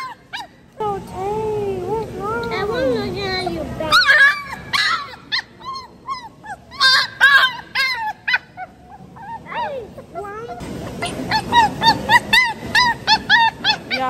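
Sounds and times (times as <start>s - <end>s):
puppy whimpering and yelping: 0.0s - 0.6s, 3.8s - 14.0s.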